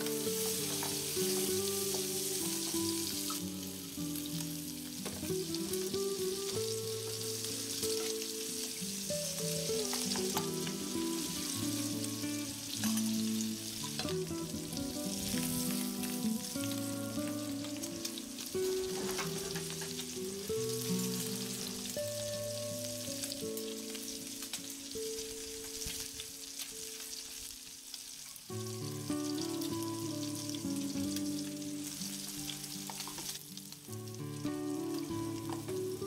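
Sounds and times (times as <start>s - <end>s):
instrumental background music: 0.0s - 36.0s
meat sizzling in a pan: 0.0s - 36.0s
small crackles and clicks: 23.2s - 28.5s, 32.0s - 34.3s.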